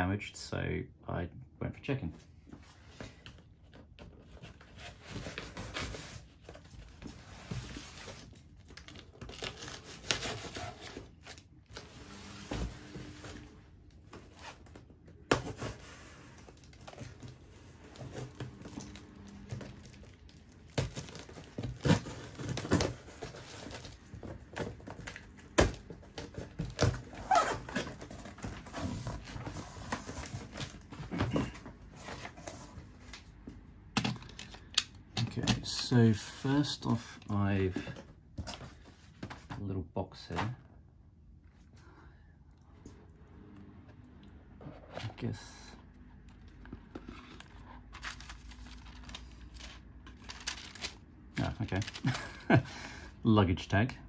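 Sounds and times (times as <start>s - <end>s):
cardboard scraping: 9.3s - 32.8s
packing tape tearing: 18.0s - 28.5s
paper crinkling: 46.2s - 52.7s.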